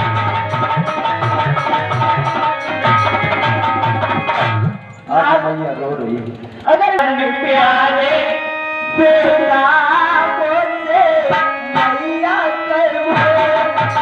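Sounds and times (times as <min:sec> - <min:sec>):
tabla strokes: 0:00.0 - 0:05.1, 0:13.1 - 0:14.0
harmonium: 0:00.0 - 0:14.0
person singing through microphone: 0:06.6 - 0:14.0.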